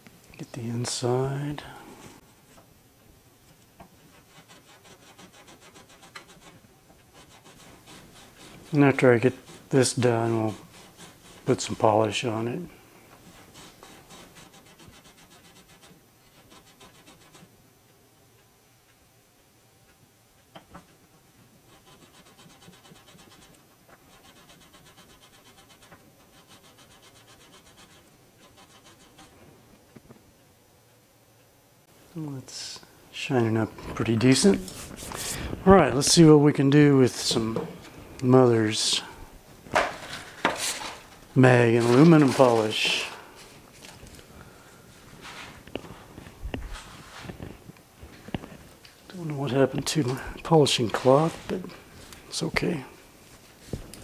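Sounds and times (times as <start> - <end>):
steel wool scratching metal ring: 4.1 - 12.5, 21.7 - 29.4.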